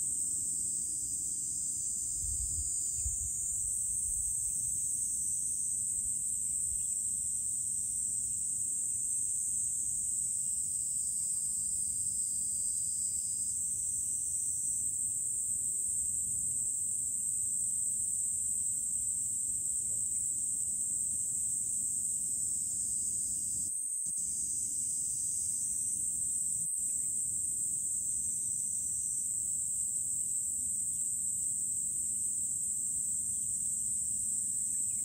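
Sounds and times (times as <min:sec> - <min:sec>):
insects droning: 0:00.0 - 0:35.0.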